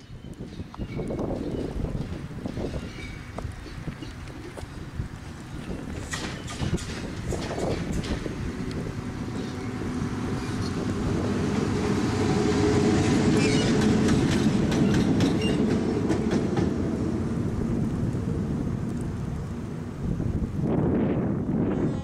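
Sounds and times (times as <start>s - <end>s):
wheels clicking over rail joints: 0.1s - 11.7s, 12.9s - 17.0s
locomotive rumbling past: 0.5s - 22.0s.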